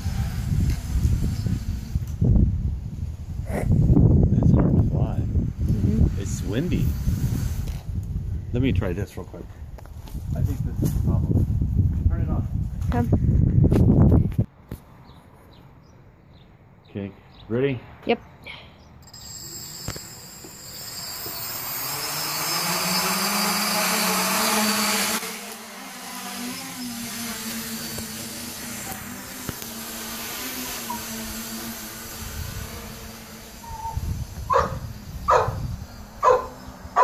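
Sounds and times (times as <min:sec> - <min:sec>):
drone motors and propellers humming: 0:00.0 - 0:10.2, 0:18.3 - 0:37.0
wind rumble on microphone: 0:00.0 - 0:14.5, 0:32.1 - 0:37.0
dog barking: 0:34.5 - 0:35.6, 0:36.2 - 0:37.0.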